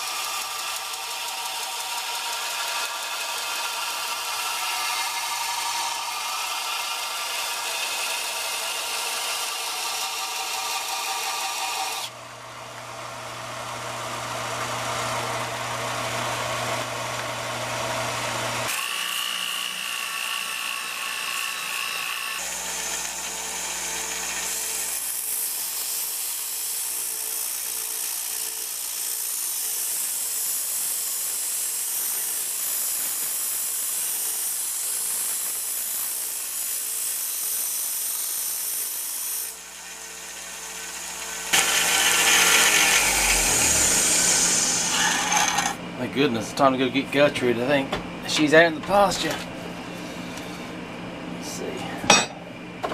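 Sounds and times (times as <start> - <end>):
belt sander grinding metal: 0.0 - 12.2, 14.4 - 45.8
rotary tool whining: 0.0 - 12.2, 16.0 - 45.8
orbital sander: 40.3 - 45.8.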